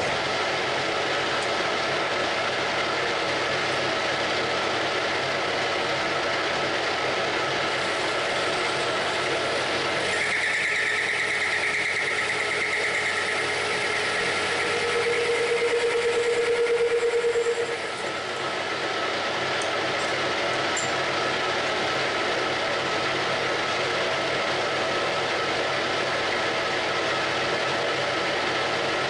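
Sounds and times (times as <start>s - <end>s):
metal lathe running: 0.0s - 29.0s
high-pitched cutting squeal: 8.0s - 18.4s
low pulsing tone: 10.0s - 18.4s.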